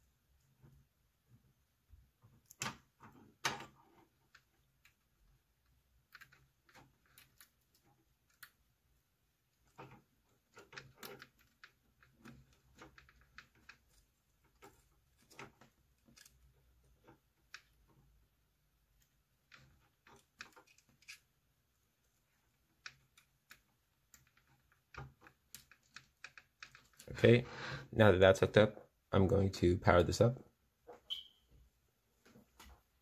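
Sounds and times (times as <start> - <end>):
wire connectors clicking onto pins: 9.6 - 18.2.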